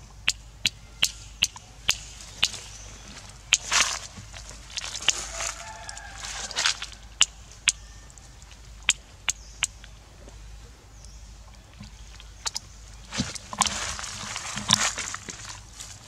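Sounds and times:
dry leaves crackling and rustling: 2.0s - 8.8s, 12.0s - 16.0s.

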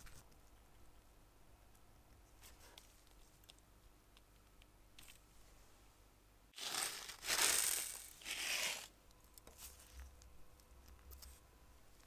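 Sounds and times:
crinkling rustling: 6.6s - 10.2s.

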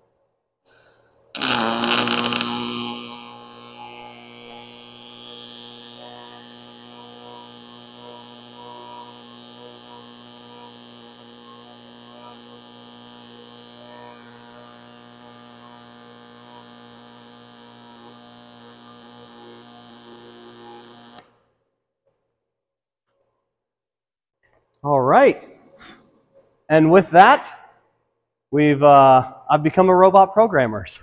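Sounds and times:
welding arc humming buzz: 0.7s - 21.4s.

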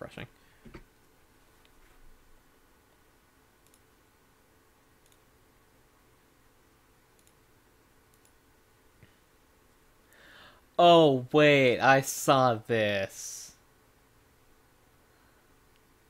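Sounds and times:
computer mouse clicks: 3.6s - 3.9s, 5.0s - 5.3s, 7.1s - 7.5s, 8.1s - 8.4s.

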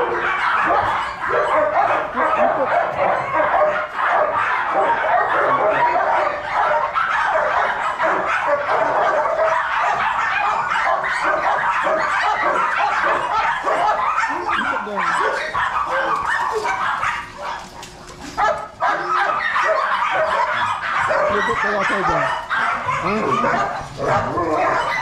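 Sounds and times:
puppies crying and yelping: 0.0s - 25.0s.

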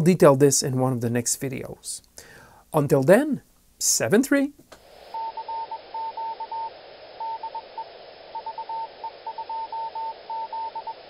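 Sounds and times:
steady hiss: 1.2s - 11.0s
morse code beeps: 5.2s - 11.0s.

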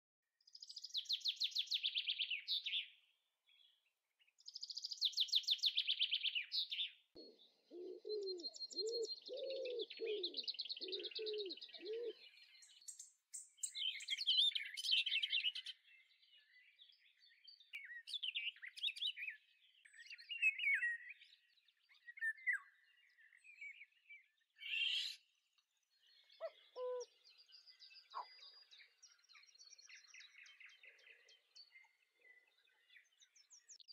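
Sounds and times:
birds chirping: 4.5s - 33.9s
low bird calls: 5.8s - 13.0s, 26.2s - 32.4s.

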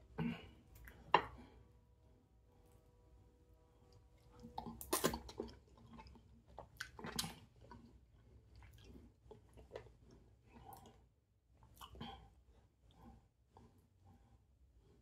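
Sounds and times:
person chewing food: 3.9s - 15.0s.

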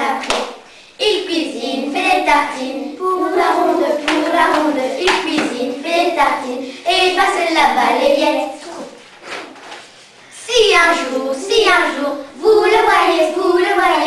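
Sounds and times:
sharp hand claps: 0.2s - 0.6s, 4.0s - 5.6s
children singing in unison: 1.0s - 7.2s, 10.7s - 14.0s.

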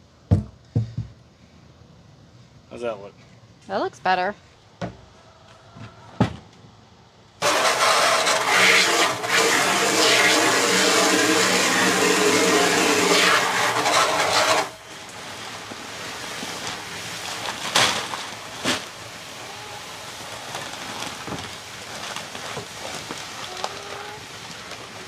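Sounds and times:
hose water pouring into barrel: 7.4s - 25.0s.

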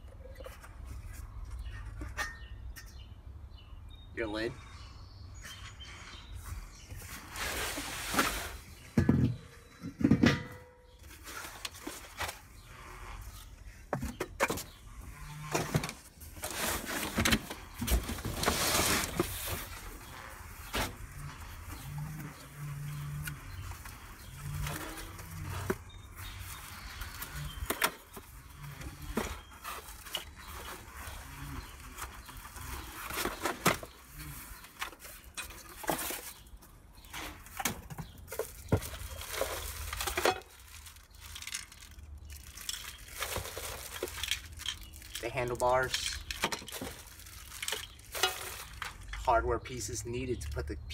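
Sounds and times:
cardboard scraping and rustling: 7.0s - 8.8s, 14.1s - 41.0s
plastic wrap crinkling: 38.3s - 49.1s.

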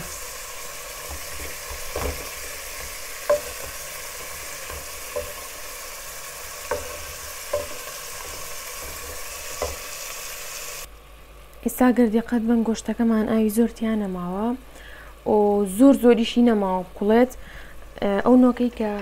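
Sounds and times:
meat and onions sizzling: 0.0s - 10.9s
wooden spoon knocking pot: 1.0s - 5.8s, 6.6s - 10.0s.

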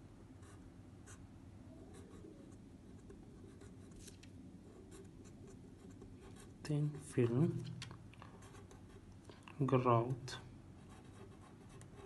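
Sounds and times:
pen scratching on paper: 10.9s - 12.0s.

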